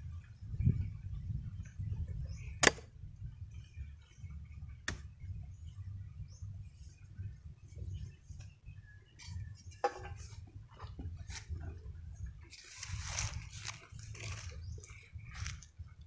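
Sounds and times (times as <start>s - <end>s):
machete chopping: 2.6s - 2.9s.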